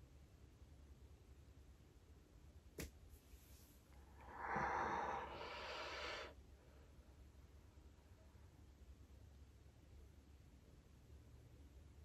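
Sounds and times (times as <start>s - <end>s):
person sighing: 4.2s - 6.3s.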